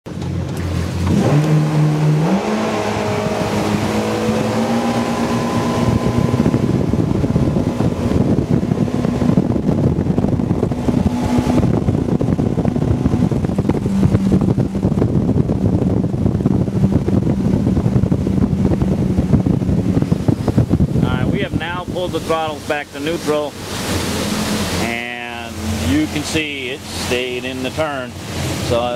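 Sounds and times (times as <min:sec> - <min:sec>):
boat engines accelerating: 0:00.1 - 0:28.9
wind and water rushing: 0:00.1 - 0:28.9.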